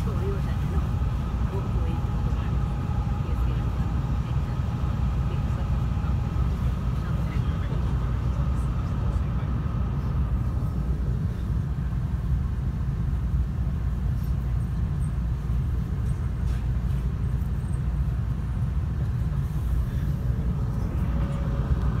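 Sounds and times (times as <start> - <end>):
low train interior rumble: 0.0 - 22.0.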